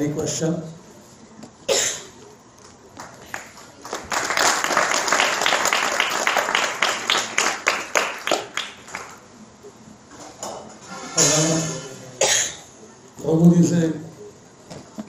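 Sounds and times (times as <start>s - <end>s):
crowd applauding: 3.0s - 9.3s.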